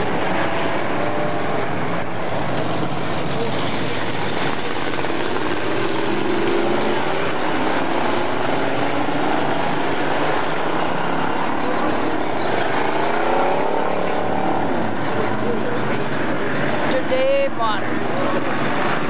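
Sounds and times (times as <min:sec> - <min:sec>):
race car engines passing: 0:00.0 - 0:19.0.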